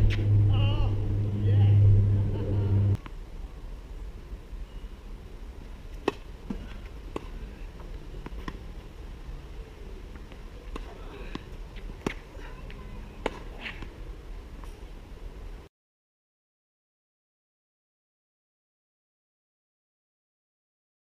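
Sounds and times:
wind rumble on microphone: 0:00.0 - 0:04.5.

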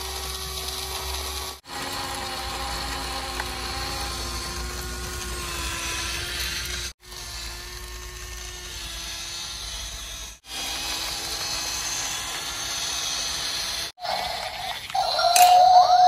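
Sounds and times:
toy gear motors whirring: 0:00.0 - 0:16.0.

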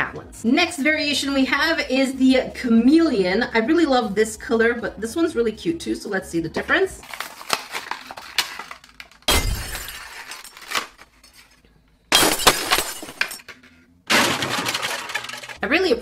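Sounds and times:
plastic packaging crinkling: 0:07.0 - 0:11.6.

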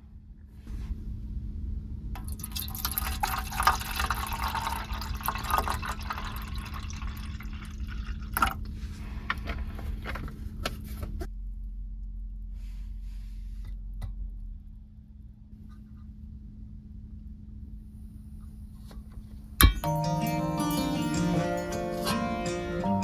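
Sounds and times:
tea pouring into metal mug: 0:02.2 - 0:08.5
sharp clinks: 0:19.6 - 0:20.2.

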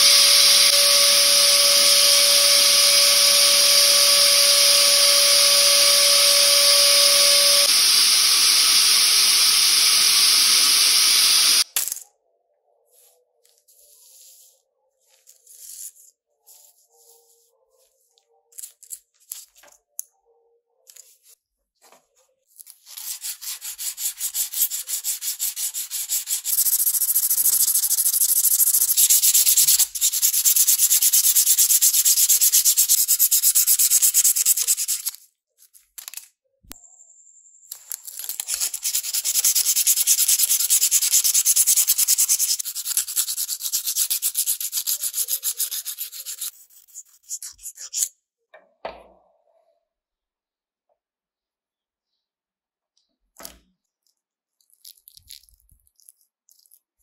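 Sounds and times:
sandpaper scratching on metal: 0:22.8 - 0:35.2, 0:38.3 - 0:48.1.

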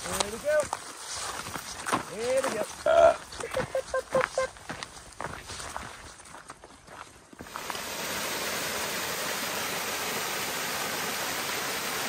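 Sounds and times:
river rushing: 0:07.4 - 0:12.0.

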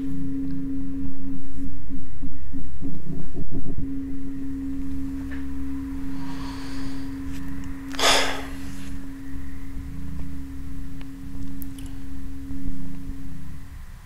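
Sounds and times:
steady low hum: 0:00.0 - 0:14.0
breathy exhale: 0:06.1 - 0:09.0.

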